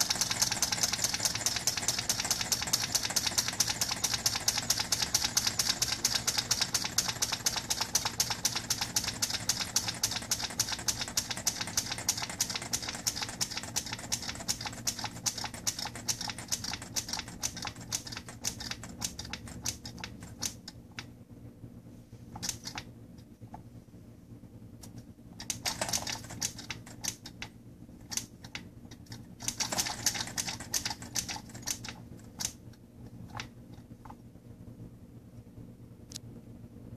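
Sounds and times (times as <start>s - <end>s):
small engine linkage clicking: 0.0s - 20.8s, 25.4s - 27.5s, 28.1s - 32.6s.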